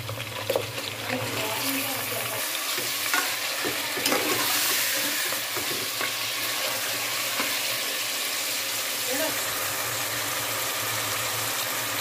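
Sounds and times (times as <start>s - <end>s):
meat sizzling in oil: 0.0s - 12.0s
ladle scraping pot: 2.7s - 7.6s.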